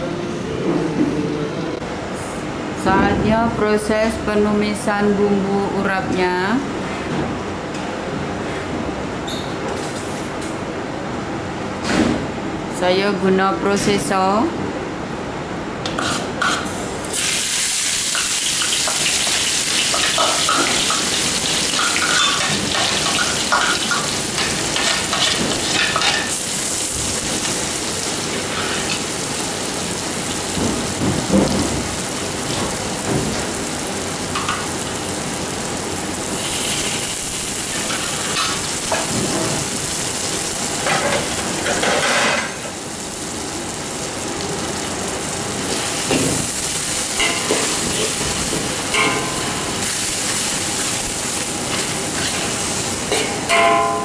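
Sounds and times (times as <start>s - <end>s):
spice paste sizzling in oil: 17.0s - 30.5s, 33.6s - 41.7s.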